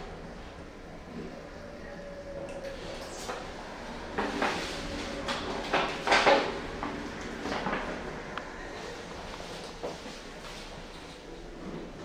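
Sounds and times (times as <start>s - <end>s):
lift doors sliding and rattling: 2.8s - 12.0s.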